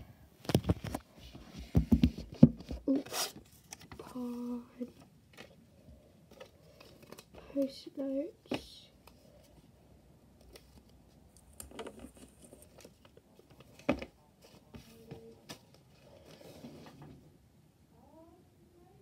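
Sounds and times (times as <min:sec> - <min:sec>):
paper rustling and shuffling: 0:00.4 - 0:05.6, 0:06.2 - 0:07.8, 0:10.5 - 0:17.2.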